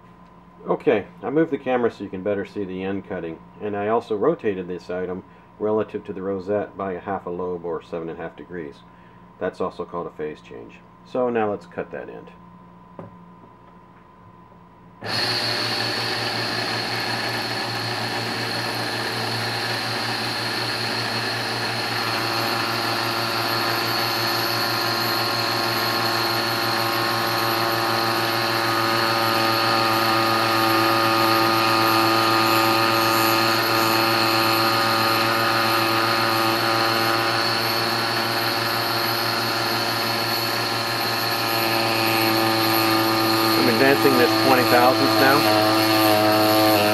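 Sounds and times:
lathe running with mechanical hum: 15.0s - 46.9s.

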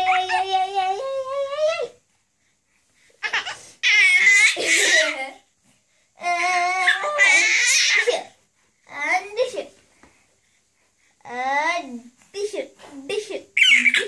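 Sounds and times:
baby laughing and squealing: 0.0s - 0.6s, 3.2s - 5.2s, 6.8s - 8.1s, 13.6s - 14.0s.

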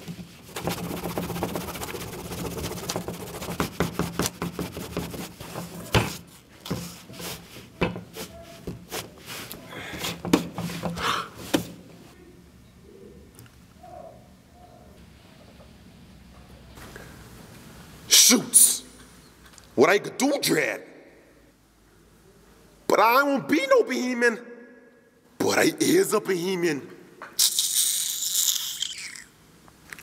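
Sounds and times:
pencil scratching on paper: 0.4s - 9.1s.

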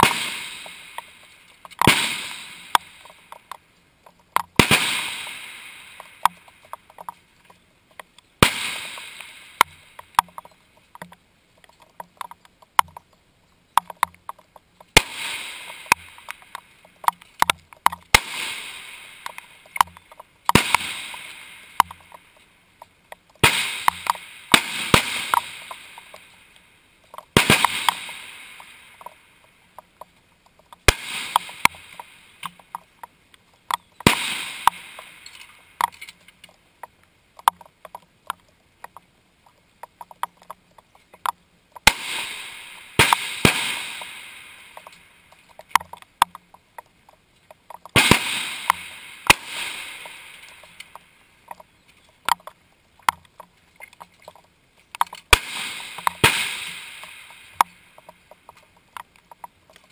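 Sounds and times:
rifle shots: 0.0s - 1.2s, 1.8s - 3.2s, 4.5s - 6.5s, 8.4s - 10.2s, 14.9s - 16.5s, 18.1s - 22.2s, 23.4s - 26.3s, 27.3s - 29.1s, 30.8s - 32.6s, 34.0s - 35.6s, 41.8s - 45.0s, 48.0s - 50.9s, 55.3s - 57.6s
faint clicks and knocks: 0.6s - 1.9s, 2.7s - 4.6s, 6.0s - 8.4s, 9.0s - 15.0s, 15.7s - 18.2s, 19.2s - 20.6s, 21.8s - 24.2s, 25.3s - 41.9s, 44.7s - 48.0s, 50.0s - 56.3s, 57.0s - 59.9s.

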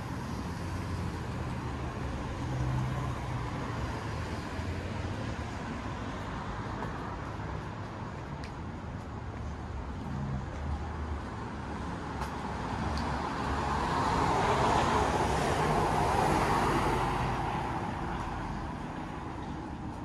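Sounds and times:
street traffic rumble: 0.0s - 20.0s
vehicle passing by: 13.1s - 18.6s.

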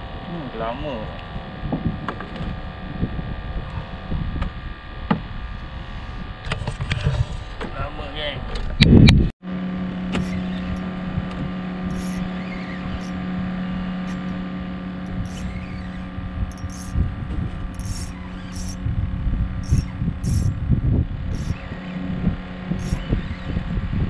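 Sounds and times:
boat engine humming: 9.5s - 24.0s.

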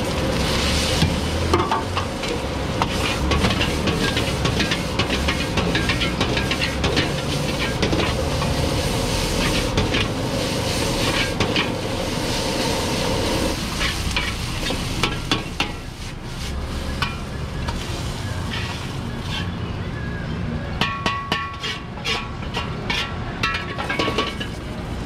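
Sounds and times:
rice sizzling in a wok: 0.0s - 19.5s
metal ladle scraping a pan: 0.3s - 19.6s, 20.8s - 24.6s.

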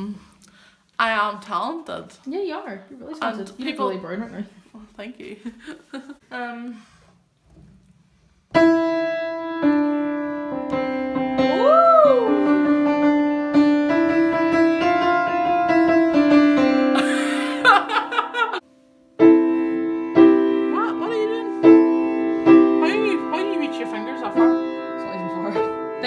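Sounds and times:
upright piano playing: 8.6s - 26.0s.

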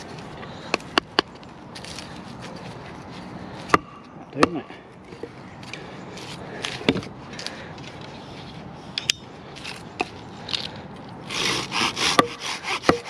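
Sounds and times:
hand saw strokes on wood: 11.3s - 13.0s.

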